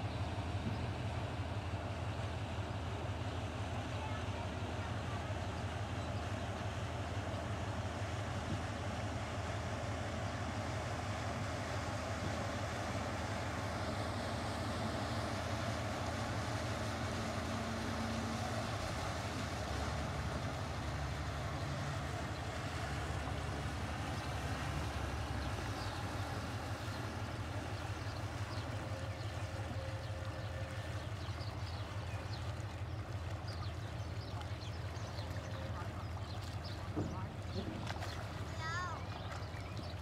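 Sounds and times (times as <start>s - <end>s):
motorboat engine droning: 0.0s - 40.0s.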